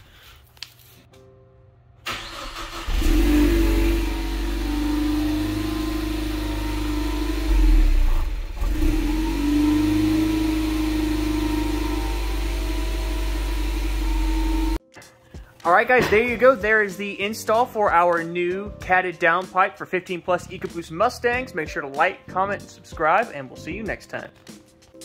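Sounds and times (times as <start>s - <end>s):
car engine cold start and idle: 2.0s - 14.8s.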